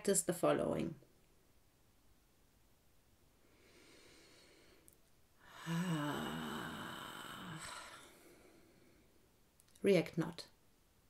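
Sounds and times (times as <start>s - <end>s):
woman breathing in: 3.4s - 9.2s
woman sighing: 5.4s - 8.5s.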